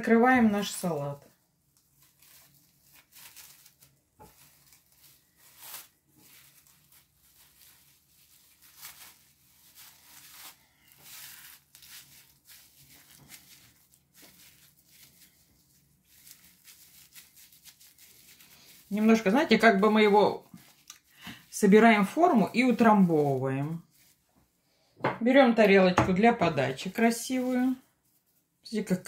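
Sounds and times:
cling film crinkling: 1.6 - 24.3.

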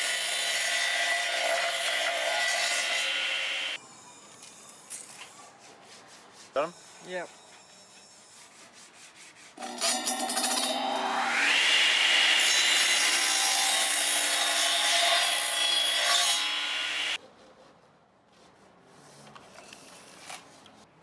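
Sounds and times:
saw cutting wood: 0.0 - 3.8, 4.4 - 17.2.

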